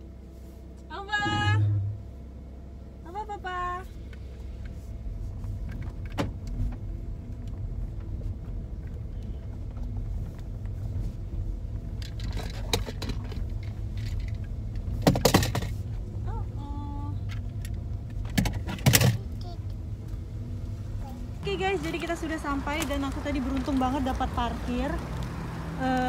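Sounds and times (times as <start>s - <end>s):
car road and engine rumble: 0.0s - 26.0s
rattles and knocks: 9.6s - 16.2s, 17.2s - 19.4s.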